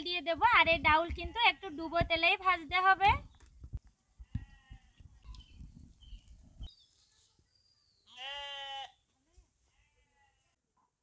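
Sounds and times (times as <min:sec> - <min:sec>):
goat bleating: 0:04.2 - 0:05.0, 0:08.1 - 0:09.0, 0:09.7 - 0:10.6.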